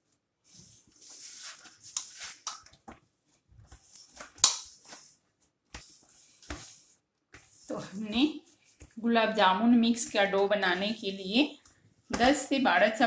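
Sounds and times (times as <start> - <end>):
dough squishing on metal plate: 0.6 - 13.0.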